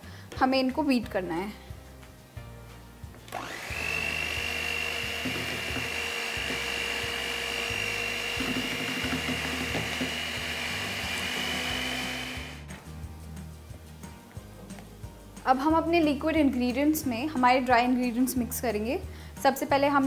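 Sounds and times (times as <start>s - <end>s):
electric hand mixer whine: 3.3s - 12.7s.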